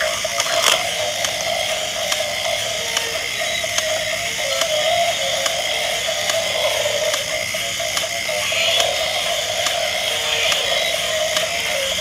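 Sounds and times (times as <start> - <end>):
toy gear motor whirring: 0.0 - 12.0.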